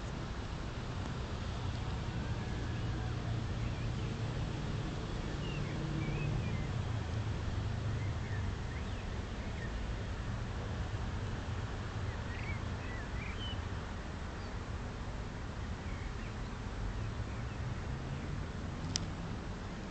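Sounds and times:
distant traffic rumble: 0.0s - 19.9s.

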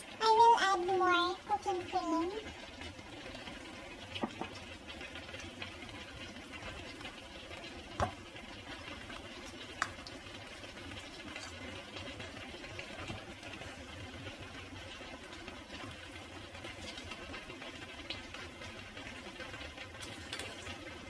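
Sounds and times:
sauce bubbling in a pan: 0.0s - 21.0s.

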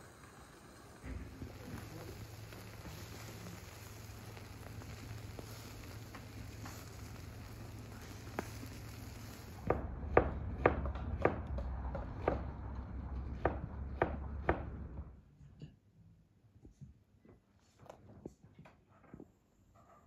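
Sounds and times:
kebabs sizzling on grill: 0.0s - 10.2s.

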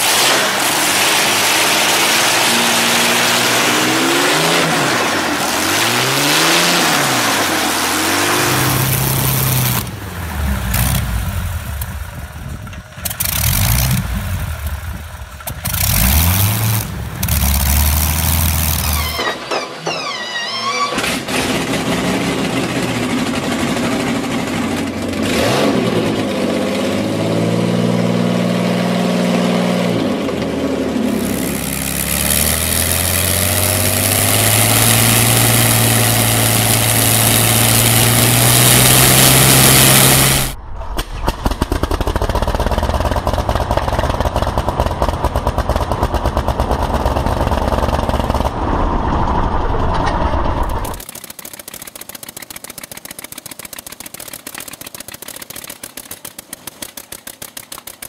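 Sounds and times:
aircraft engine revving: 0.0s - 20.2s, 20.8s - 58.0s
radial aircraft engine clattering: 30.2s - 58.0s.

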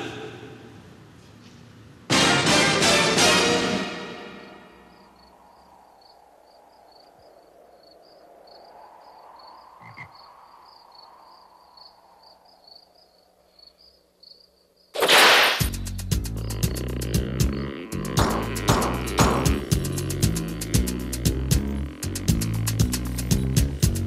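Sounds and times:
loud music: 2.1s - 4.6s
crickets chirping: 4.3s - 24.0s
frogs: 4.9s - 14.9s.

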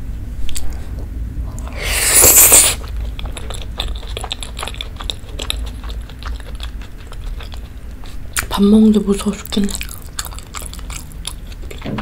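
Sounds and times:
slurping noodles: 1.6s - 6.1s
wet chewing: 1.6s - 12.0s.

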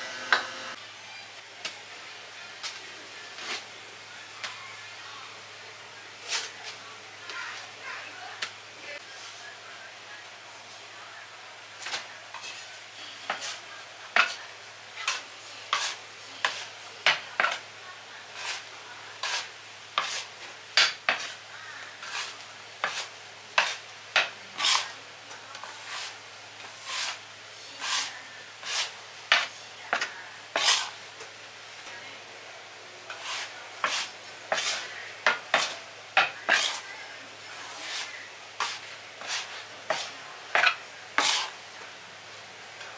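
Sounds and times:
metal scraper scraping dough: 11.9s - 14.4s, 15.0s - 17.6s, 18.3s - 21.4s, 22.0s - 25.0s, 25.6s - 27.2s, 27.8s - 31.0s, 33.1s - 36.9s, 37.6s - 41.6s.

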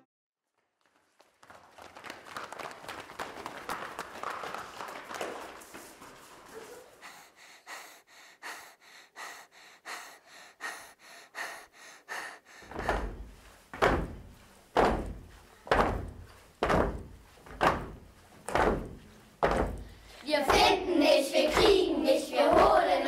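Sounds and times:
deep heavy thumps: 12.6s - 20.0s.

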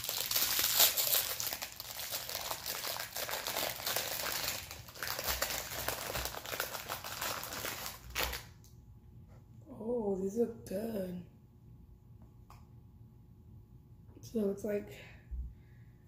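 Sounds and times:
plastic wrapper crackling: 0.0s - 8.6s.

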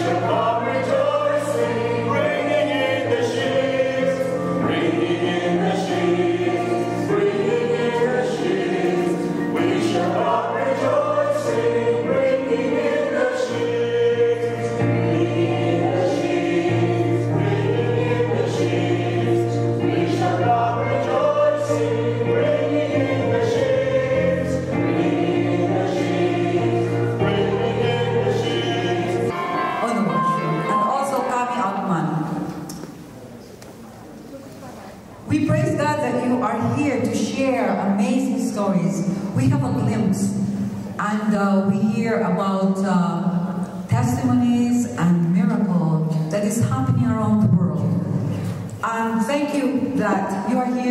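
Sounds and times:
sustained chords: 0.0s - 32.0s
group singing a hymn: 0.0s - 32.5s.

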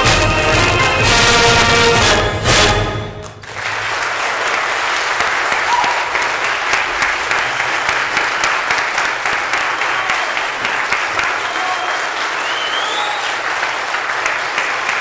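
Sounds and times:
background music: 0.0s - 3.5s
people clapping: 0.0s - 15.0s.

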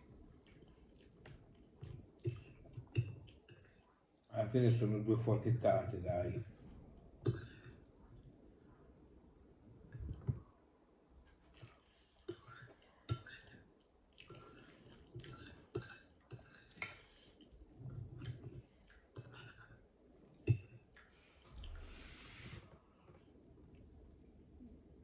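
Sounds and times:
fork scraping a ceramic plate: 15.2s - 17.1s.

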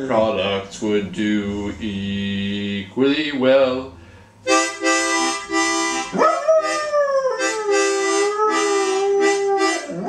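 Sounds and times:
harmonica chords: 4.4s - 10.0s
dog howling: 6.1s - 10.0s.

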